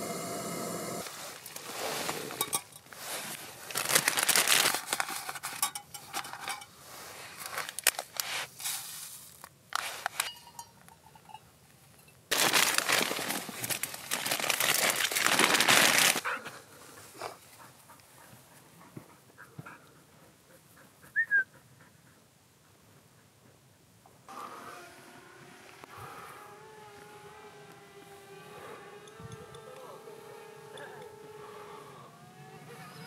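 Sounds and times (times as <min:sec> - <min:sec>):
paper packaging crinkling: 0:01.0 - 0:06.6, 0:07.3 - 0:10.3, 0:12.3 - 0:16.3.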